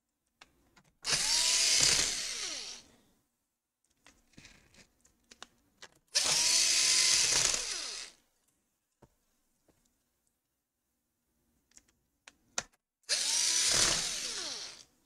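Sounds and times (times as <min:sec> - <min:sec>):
power screwdriver motor whine: 0:01.1 - 0:02.8, 0:06.2 - 0:08.2, 0:13.1 - 0:14.9.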